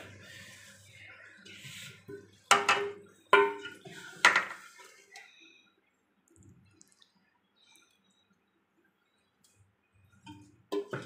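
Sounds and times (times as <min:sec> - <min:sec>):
metal spoon knocking on pot: 0:02.5 - 0:04.5.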